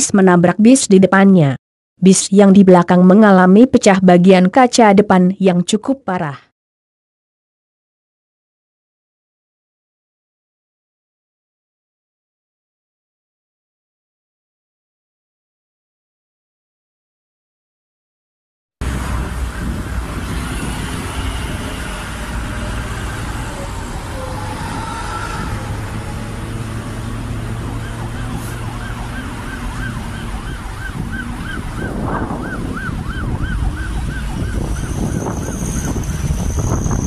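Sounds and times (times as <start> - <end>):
emergency siren warbling: 18.8 - 37.0
traffic rumble: 18.8 - 37.0.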